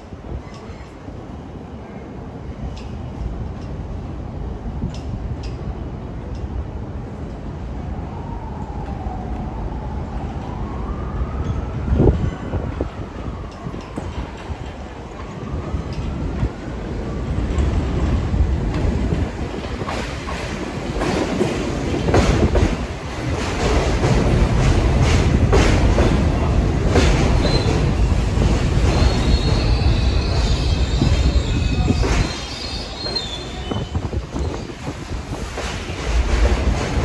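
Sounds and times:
subway train rumbling: 0.0 - 37.0
high wheel squeal: 28.9 - 34.5.

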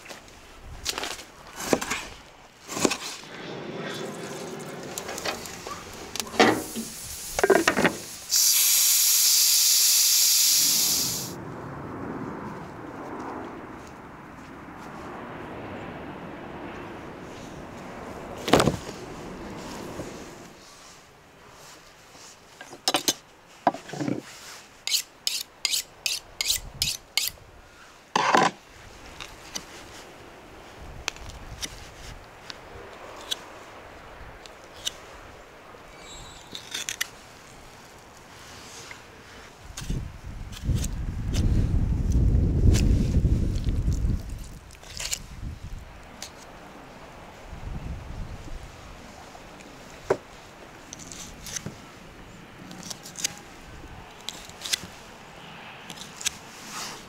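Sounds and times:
steam hissing: 3.3 - 11.4.

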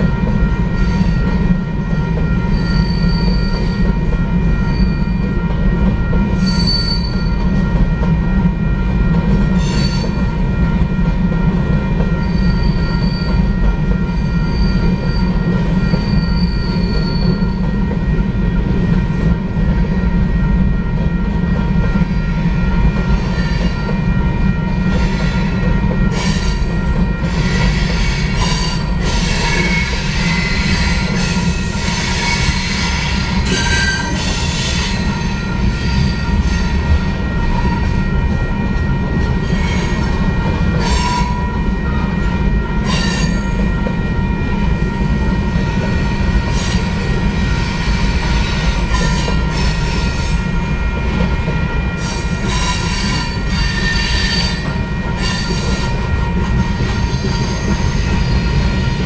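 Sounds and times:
train wheels rumbling on rail: 0.0 - 59.0
wheel squeal: 2.6 - 3.8, 6.4 - 7.3, 12.2 - 13.4, 14.2 - 17.6.

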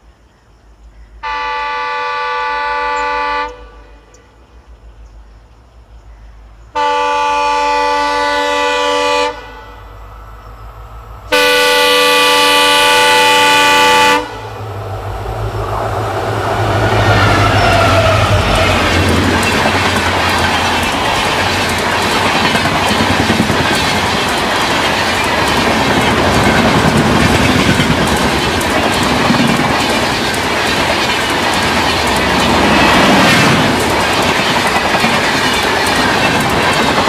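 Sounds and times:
train rumble: 1.1 - 37.0
locomotive horn blasts: 1.2 - 4.2, 6.8 - 10.0, 11.3 - 14.6.

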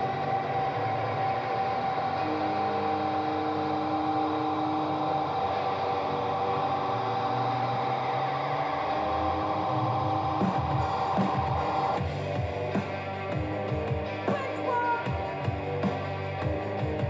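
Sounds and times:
tape hiss: 0.0 - 17.0.

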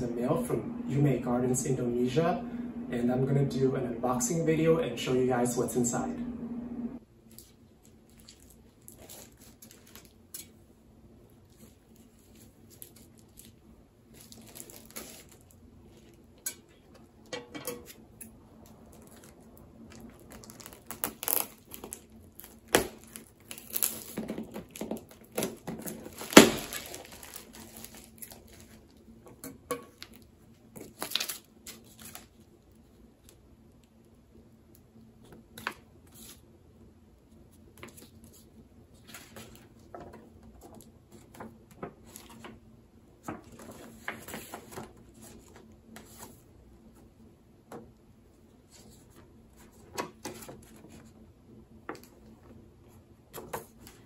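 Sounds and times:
packing material tearing and crinkling: 7.3 - 10.6, 11.4 - 16.3, 18.6 - 29.1, 30.0 - 32.6.

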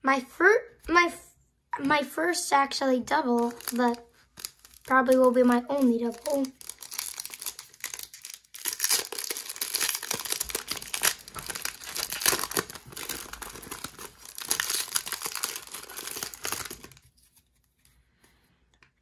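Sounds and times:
foil wrapper tearing and crinkling: 3.3 - 17.5.

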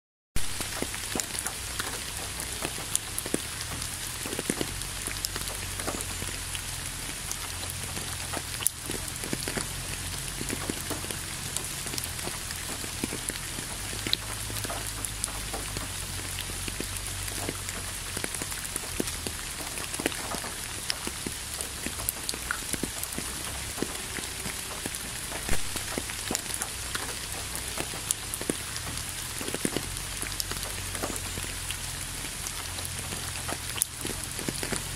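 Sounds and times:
raindrops striking close by: 0.4 - 34.9
steady rain hiss: 0.4 - 34.9.

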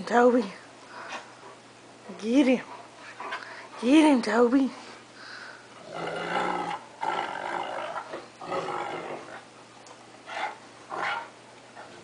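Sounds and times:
dogs growling in play: 5.7 - 9.5, 10.2 - 12.0.

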